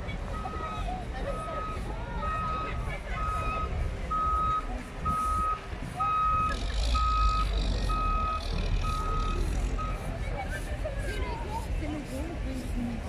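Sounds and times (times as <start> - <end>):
truck engine rumble: 0.0 - 13.0
truck reversing alarm beeping: 0.2 - 10.2.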